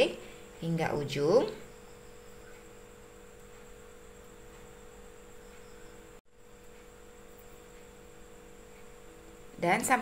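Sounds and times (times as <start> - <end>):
faint electrical hum: 0.0 - 10.0.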